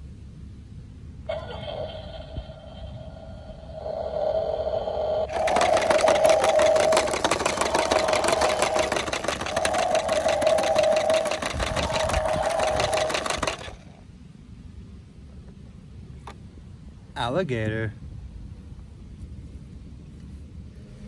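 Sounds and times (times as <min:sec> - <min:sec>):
toy electronic steady tone: 0:01.3 - 0:13.8
toy rattling engine sound effect: 0:01.3 - 0:14.0.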